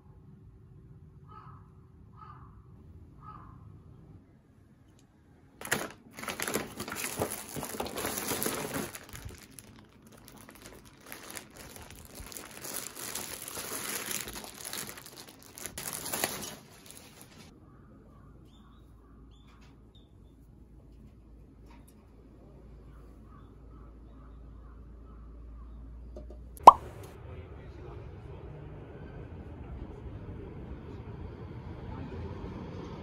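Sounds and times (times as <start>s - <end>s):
faint handling sounds: 5.6s - 17.5s
paper and plastic bags crinkling: 5.6s - 17.5s.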